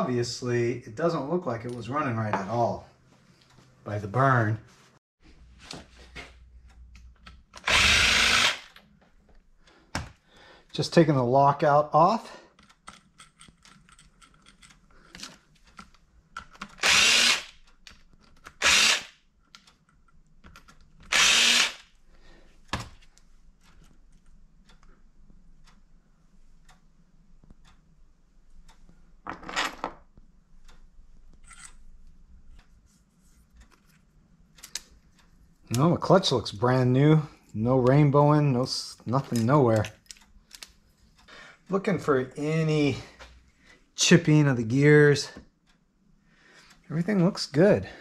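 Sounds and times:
power tool bursts: 7.6s - 8.8s, 16.8s - 17.6s, 18.6s - 19.1s, 21.1s - 21.8s
small clicks and knocks: 17.6s - 18.6s, 19.4s - 21.1s, 33.4s - 35.3s, 39.1s - 41.3s.

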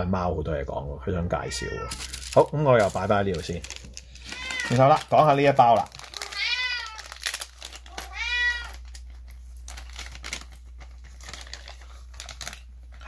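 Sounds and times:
cat meowing: 1.3s - 2.8s, 4.2s - 5.0s, 6.1s - 7.1s, 7.9s - 8.9s
faint crinkling: 1.8s - 13.0s.

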